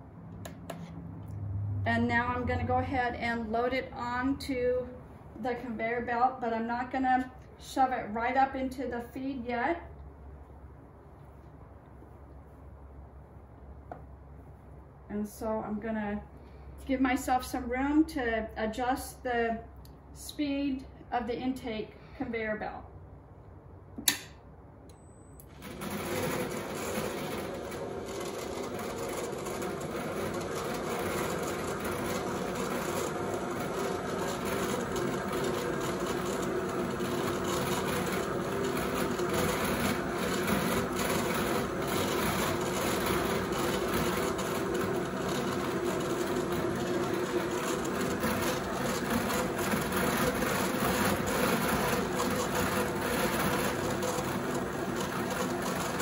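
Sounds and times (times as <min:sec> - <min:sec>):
switch click: 0:24.0 - 0:25.0
drum carder machine humming: 0:25.4 - 0:56.0.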